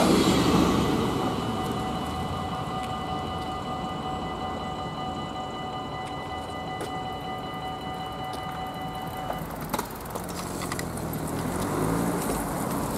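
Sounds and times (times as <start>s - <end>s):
level crossing bell ringing: 0.0s - 10.2s
road traffic noise: 0.0s - 12.9s.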